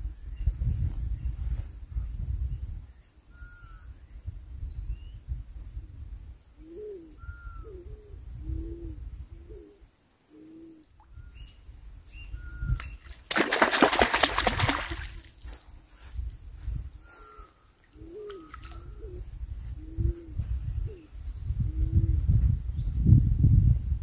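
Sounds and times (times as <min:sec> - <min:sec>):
dove cooing: 0:06.6 - 0:10.9, 0:17.1 - 0:22.2
bird chirping: 0:09.6 - 0:13.1.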